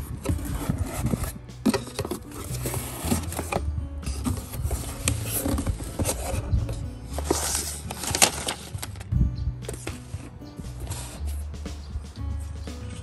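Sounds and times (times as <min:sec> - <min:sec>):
cardboard box being handled: 0:00.0 - 0:09.0
background music with bass: 0:00.0 - 0:13.0.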